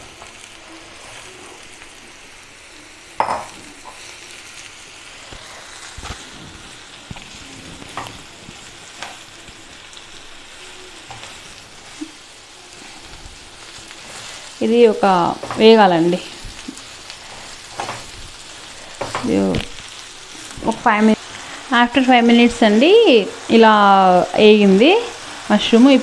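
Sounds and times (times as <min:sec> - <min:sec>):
mushrooms sizzling in a frying pan: 0:00.0 - 0:26.0
spatula scraping a pan: 0:10.9 - 0:20.6.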